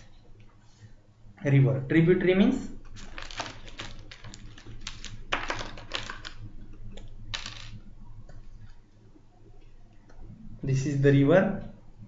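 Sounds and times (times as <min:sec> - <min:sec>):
paper rustling: 0:02.9 - 0:06.4.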